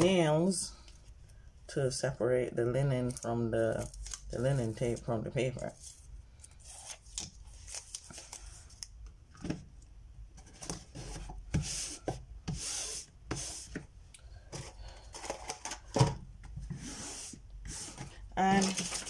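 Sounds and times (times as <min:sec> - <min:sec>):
paper rustling and scraping: 0:03.8 - 0:08.8, 0:16.6 - 0:19.0.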